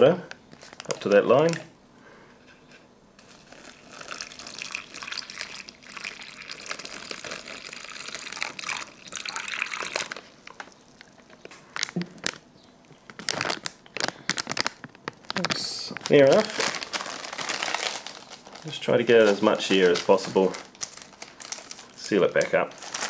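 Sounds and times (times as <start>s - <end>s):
plastic bag crinkling: 0.5s - 1.6s, 3.2s - 23.0s
water pouring into plastic bag: 3.2s - 11.1s, 13.2s - 23.0s.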